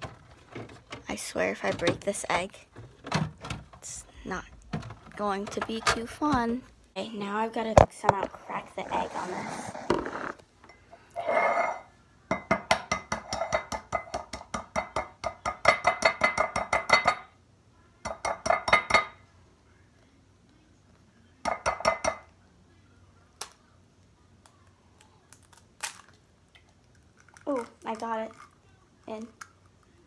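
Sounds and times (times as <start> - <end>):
egg tapping on ceramic mug: 12.3 - 17.2, 21.5 - 22.3.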